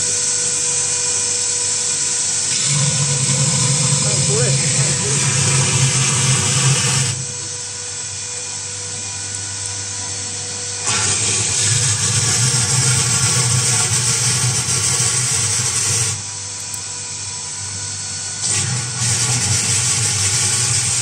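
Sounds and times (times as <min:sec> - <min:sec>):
mixer machine hum and whine: 0:00.0 - 0:21.0
loud hiss: 0:02.6 - 0:07.4.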